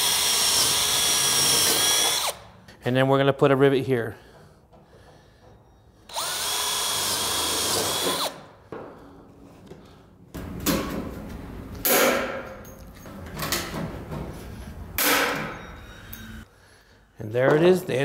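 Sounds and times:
cordless drill whining through metal: 0.0s - 2.4s, 6.0s - 8.5s.

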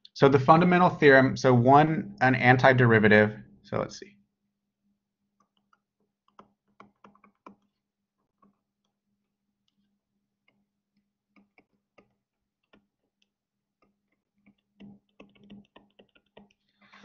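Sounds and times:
stylus tapping on tablet screen: 5.4s - 9.0s, 10.4s - 17.0s.

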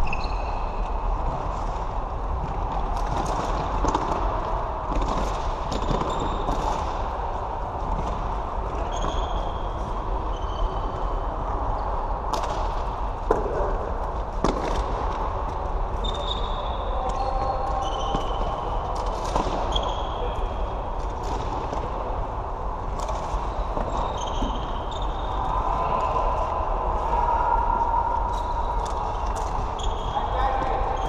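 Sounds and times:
shoes squeaking on floor: 0.0s - 0.8s, 8.8s - 11.0s, 23.6s - 25.4s, 29.8s - 31.0s.

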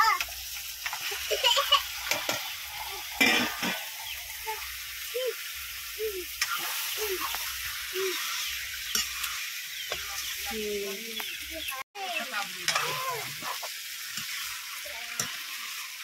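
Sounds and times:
chicken sizzling in hot oil: 0.0s - 16.0s
steel ladle scraping pan: 2.0s - 4.2s, 6.4s - 10.5s, 12.6s - 16.0s.

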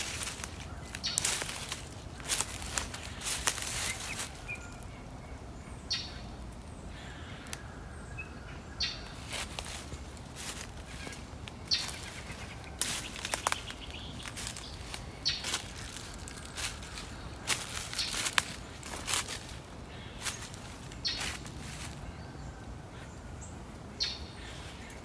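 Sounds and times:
footsteps crunching dry leaves: 0.0s - 5.1s, 8.8s - 22.3s
faint bird chirps: 10.4s - 25.0s.

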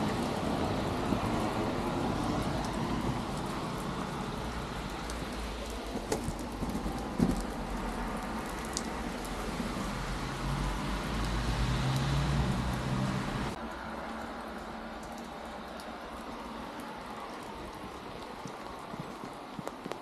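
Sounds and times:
rain on cobblestones: 0.0s - 20.0s.

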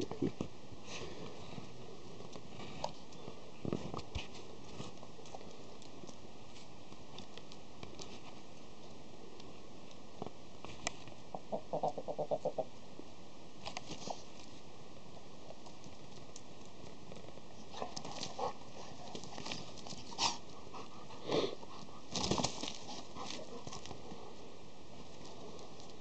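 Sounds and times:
animals scuffling on dirt: 0.0s - 11.3s, 13.6s - 26.0s
rooster wings flapping: 22.1s - 23.8s.

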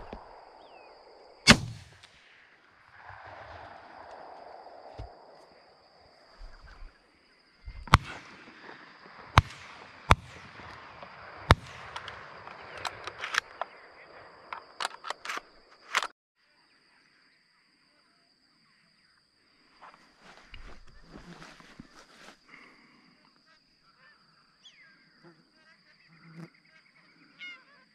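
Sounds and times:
shotgun blasts: 0.0s - 5.3s, 7.7s - 13.7s
faint sharp cracks: 1.4s - 5.8s, 7.7s - 16.1s.

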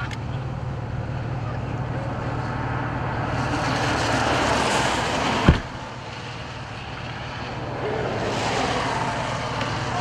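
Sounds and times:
low engine hum: 0.0s - 10.0s
sharp low thump: 5.4s - 5.8s.

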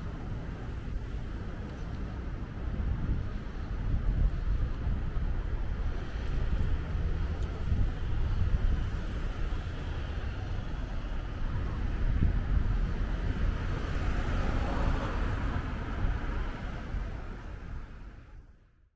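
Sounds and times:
wind on microphone: 0.0s - 18.5s
road traffic rumble: 0.0s - 18.7s.

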